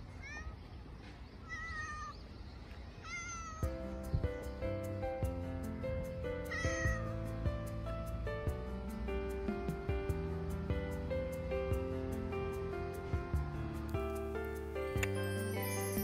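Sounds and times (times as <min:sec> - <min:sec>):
cat meowing: 0:00.1 - 0:00.6, 0:01.4 - 0:02.2, 0:03.0 - 0:03.7, 0:06.5 - 0:07.1
background music: 0:03.6 - 0:16.0.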